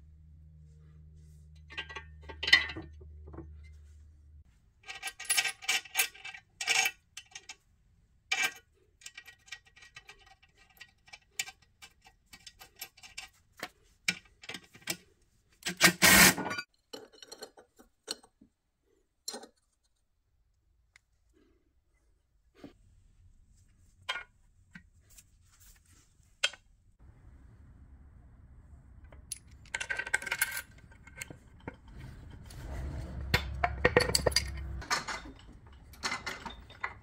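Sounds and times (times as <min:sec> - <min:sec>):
metal bolts clinking: 0:29.1 - 0:37.0
metal on metal clatter: 0:29.1 - 0:37.0.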